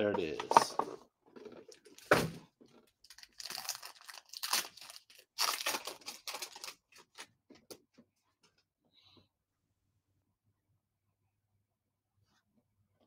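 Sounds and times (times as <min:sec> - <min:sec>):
foil wrapper crinkling and tearing: 0:03.0 - 0:07.4.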